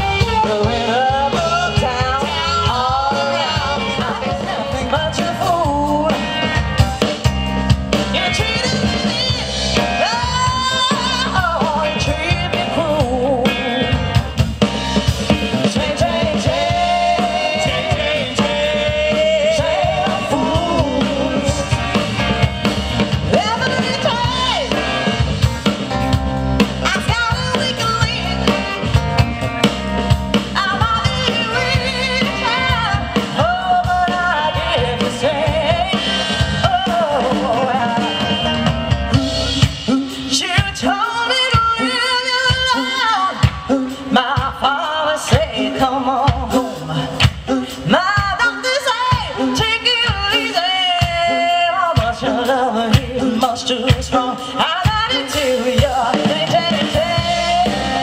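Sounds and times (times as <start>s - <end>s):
person singing: 0.0s - 6.5s, 15.3s - 22.3s, 30.6s - 38.8s, 39.6s - 58.0s
drum kit steady beat: 0.0s - 58.0s
soul band playing: 0.0s - 58.0s.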